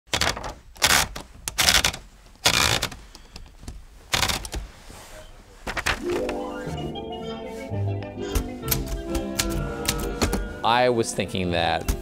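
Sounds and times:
typewriter clacks and rattles: 0.1 - 3.0.

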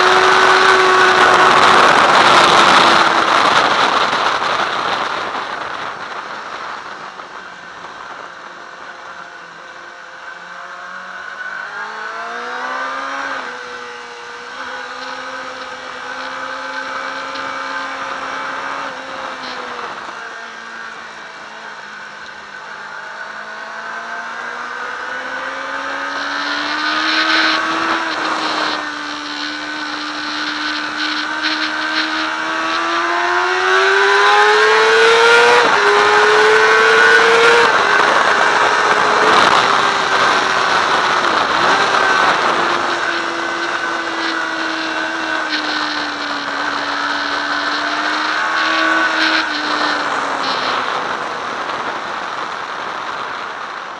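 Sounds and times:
motorcycle engine: 0.0 - 53.9.

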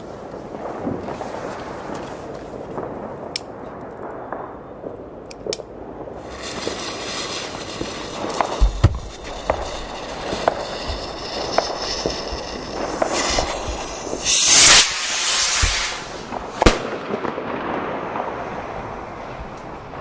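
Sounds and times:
skyrocket launching with rushing hiss: 6.2 - 17.2
firecracker bangs: 6.2 - 18.6
sharp loud bang: 6.4 - 17.0.

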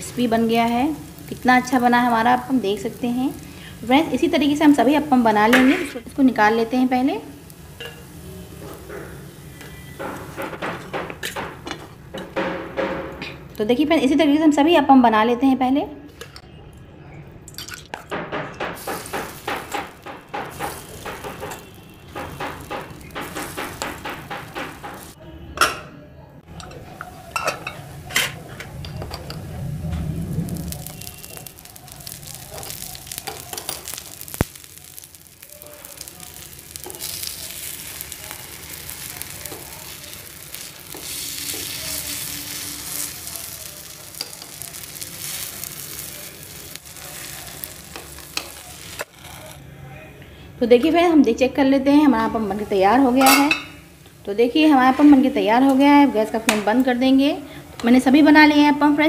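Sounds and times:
batter sizzling in oil: 0.0 - 10.4, 18.8 - 25.2, 29.6 - 49.6.

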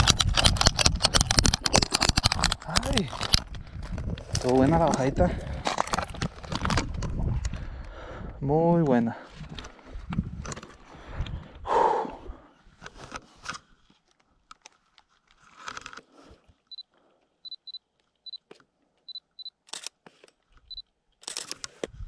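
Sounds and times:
camera handling noise: 0.0 - 7.6, 12.8 - 16.1, 19.6 - 22.0
high autofocus beeps: 17.5 - 18.4
camera shutter clicks: 19.7 - 20.0, 21.2 - 21.8.

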